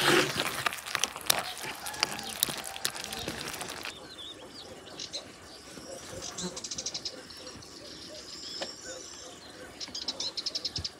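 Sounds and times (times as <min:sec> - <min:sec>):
wooden spoon stirring: 0:00.0 - 0:03.9
stew bubbling and popping: 0:00.0 - 0:04.2
small birds chirping: 0:00.0 - 0:10.9.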